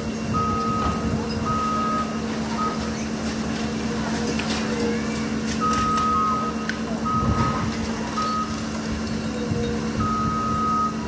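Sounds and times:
engine hum: 0.0s - 11.0s
warning alarm beeps: 0.3s - 2.9s, 5.6s - 8.6s, 9.4s - 11.0s.

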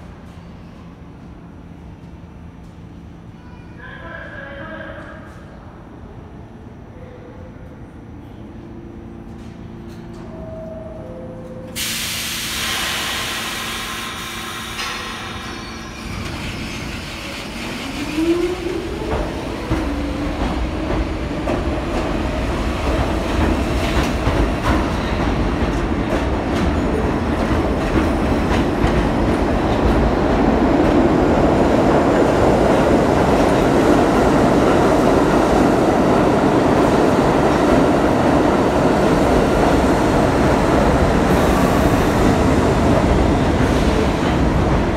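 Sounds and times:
air brakes hissing: 11.8s - 17.8s.

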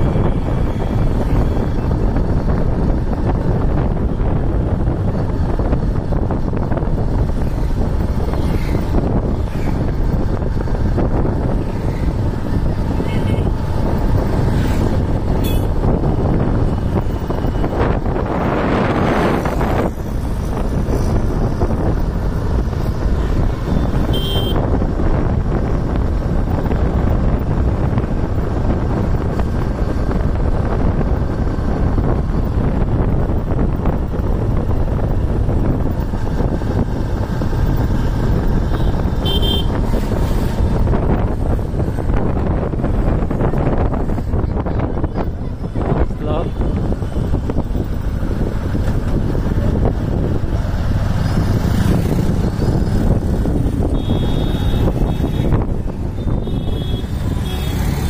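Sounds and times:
motorbike road and engine noise: 0.0s - 58.0s
wind buffeting microphone: 0.0s - 58.0s
vehicle passing close by: 46.7s - 56.0s, 57.0s - 58.0s.

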